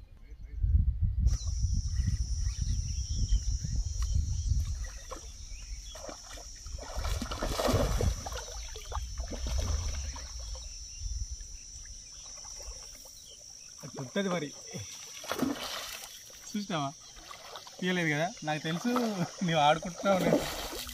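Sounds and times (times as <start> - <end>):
wind rumble on microphone: 0.0 - 12.1
fish splashing in water: 5.9 - 10.6, 14.5 - 16.4, 17.1 - 17.8, 18.8 - 20.9.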